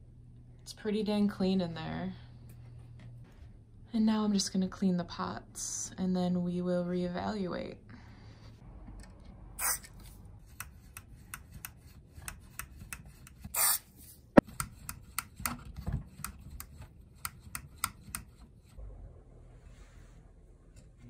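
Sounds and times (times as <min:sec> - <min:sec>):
spray can hissing: 0:09.6 - 0:10.0, 0:13.5 - 0:13.9.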